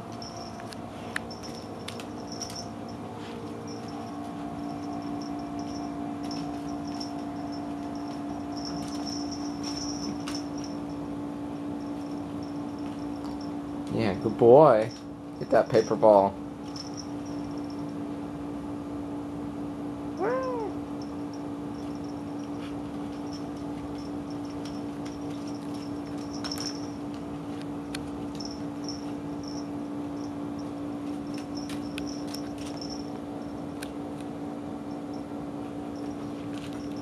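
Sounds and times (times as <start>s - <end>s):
steady low hum: 0.0s - 37.0s
kitten meowing: 20.2s - 20.8s.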